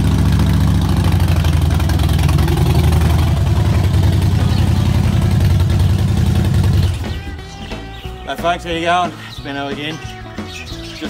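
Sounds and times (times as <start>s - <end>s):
motorcycle engine idling: 0.0s - 8.3s.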